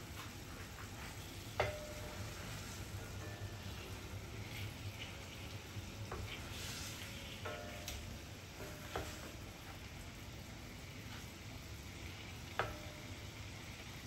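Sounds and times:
sauce simmering and sizzling: 0.0s - 14.0s
pan ringing: 1.6s - 2.4s.

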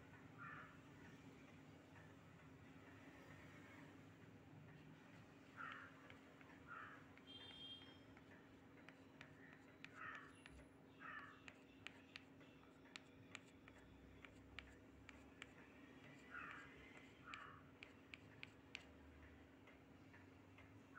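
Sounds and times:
faint calls: 5.4s - 8.2s, 8.9s - 12.2s, 15.1s - 18.6s.

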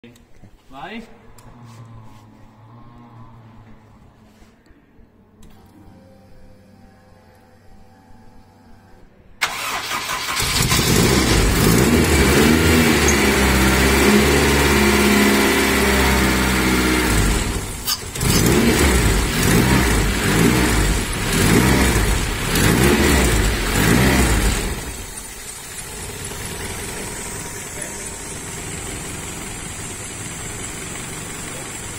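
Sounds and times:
engine starter cranking: 9.4s - 14.0s, 17.8s - 18.7s
car engine revving unevenly: 10.3s - 31.9s.

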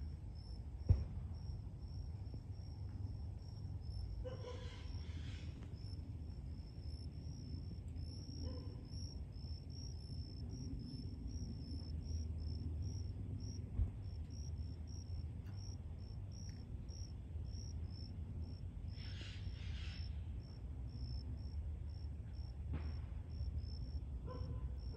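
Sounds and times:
insects chirping: 0.0s - 24.9s
thump: 0.8s - 1.3s, 22.7s - 23.2s.

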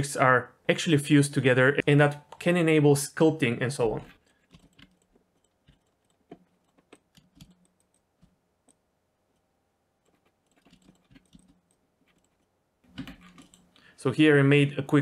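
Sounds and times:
keyboard and mouse clicks: 4.4s - 9.4s, 10.0s - 13.9s.

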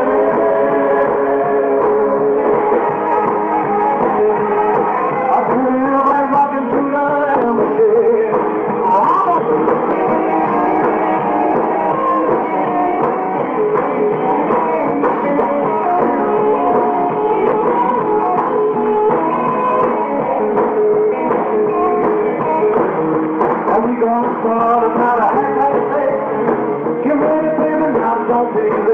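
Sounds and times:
rock and roll band playing live: 0.0s - 28.9s.

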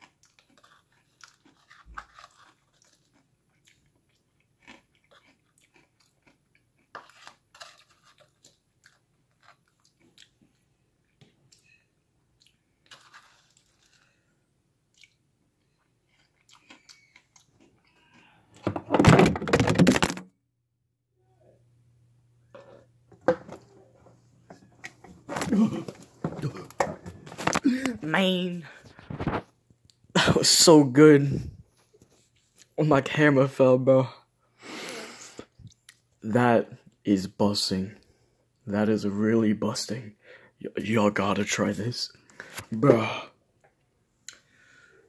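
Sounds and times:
crunchy chewing of snacks: 0.0s - 18.6s
camera falling over clattering: 18.6s - 20.2s.

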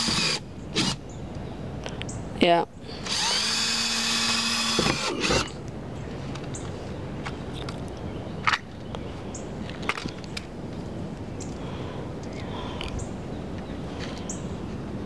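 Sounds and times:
cordless drill drilling: 0.0s - 1.0s, 3.0s - 5.5s.

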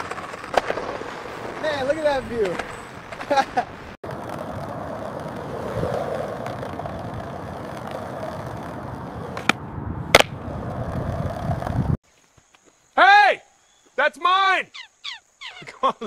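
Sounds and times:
skateboard grinding on concrete: 0.0s - 12.0s
skateboard clacks: 1.9s - 11.9s.

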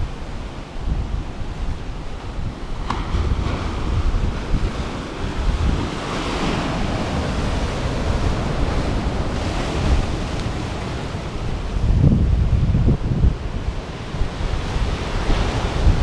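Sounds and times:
wind buffeting microphone: 0.0s - 16.0s
waves breaking on rocks: 1.2s - 11.8s.

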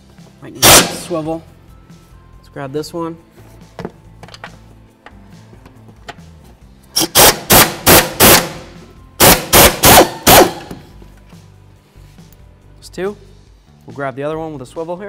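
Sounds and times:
air impact wrench hammering: 0.6s - 1.3s, 7.0s - 10.9s.

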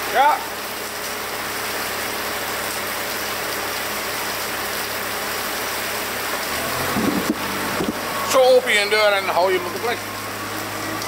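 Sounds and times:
rain on a metal roof: 0.0s - 11.0s.

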